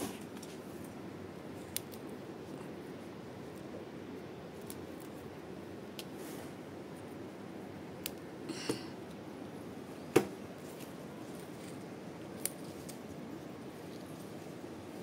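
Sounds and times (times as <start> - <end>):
chilli stems snapping: 1.6 - 2.2, 4.5 - 5.2, 5.9 - 6.2, 8.0 - 8.3, 10.8 - 13.2
leaf rustle: 10.4 - 15.0.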